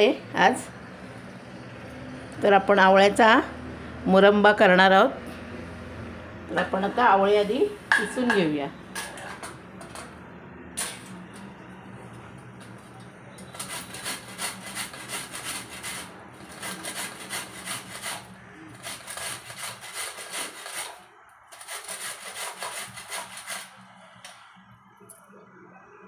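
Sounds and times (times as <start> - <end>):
fruit rasping on a grater: 13.5 - 23.8.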